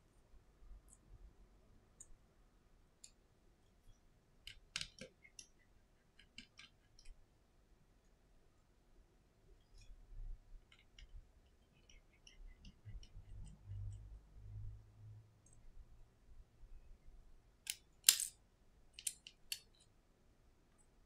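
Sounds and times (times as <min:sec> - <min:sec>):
metal parts clicking: 0:17.7 - 0:18.3, 0:19.0 - 0:19.7.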